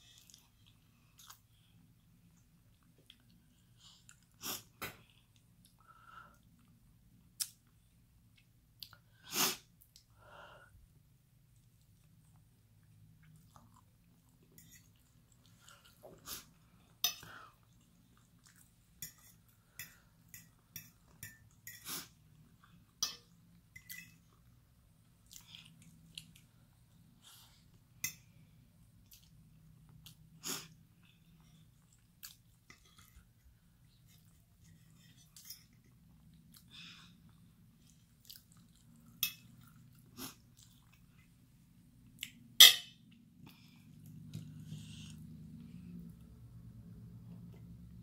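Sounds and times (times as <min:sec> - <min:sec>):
person chewing food: 0:00.0 - 0:04.4, 0:11.5 - 0:27.8, 0:29.0 - 0:42.5.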